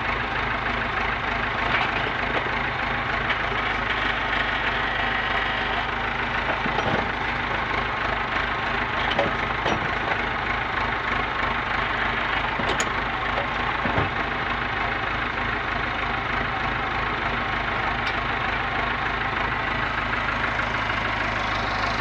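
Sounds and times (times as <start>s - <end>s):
machine engine running: 3.1s - 10.3s, 18.7s - 22.0s.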